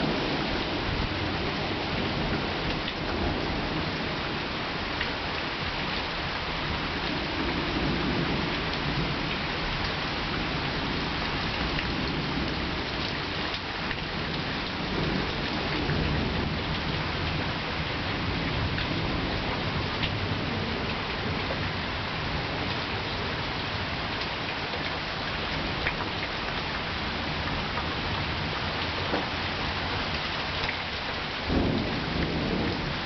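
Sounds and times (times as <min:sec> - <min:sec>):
rain pattering: 0:00.0 - 0:33.0
thunder rumbling: 0:31.4 - 0:33.0.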